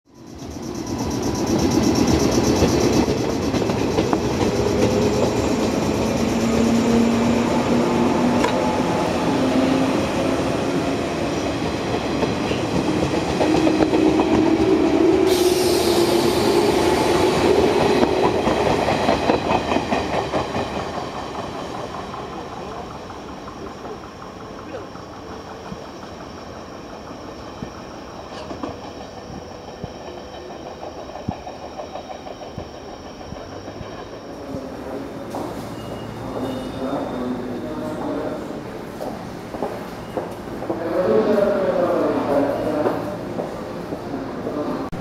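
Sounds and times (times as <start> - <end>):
high hiss: 15.2 - 17.8.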